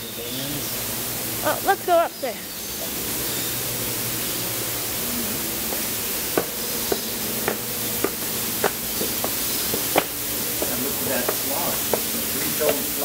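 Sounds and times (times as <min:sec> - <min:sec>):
low hum: 0:00.0 - 0:10.6
rushing hiss: 0:00.4 - 0:13.0
footsteps on concrete stairs: 0:05.7 - 0:12.9.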